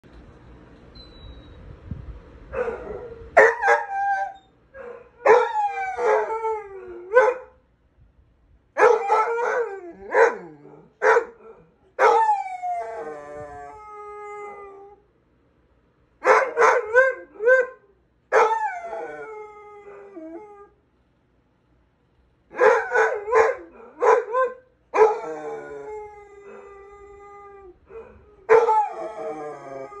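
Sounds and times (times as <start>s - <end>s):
dog howling: 2.6s - 7.5s, 22.6s - 30.0s.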